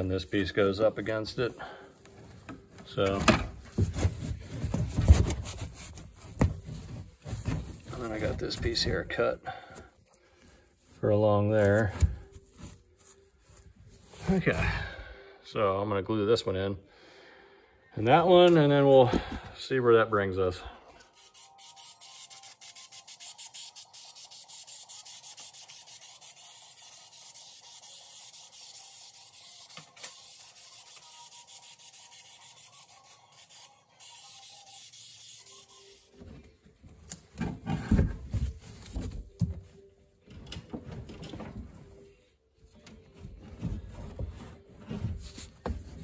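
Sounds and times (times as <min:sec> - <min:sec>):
carpet rustling and thumping: 0:02.4 - 0:09.0, 0:36.2 - 0:41.9.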